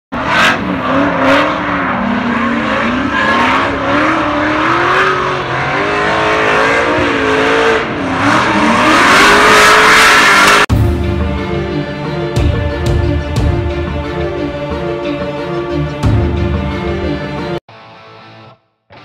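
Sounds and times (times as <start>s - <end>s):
car engines revving high: 0.1s - 10.7s.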